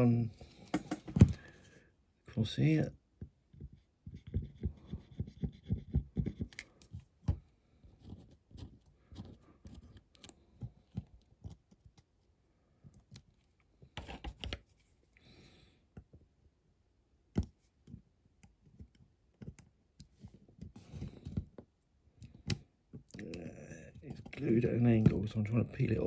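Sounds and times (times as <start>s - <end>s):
small taps and clicks: 0.7s - 1.4s.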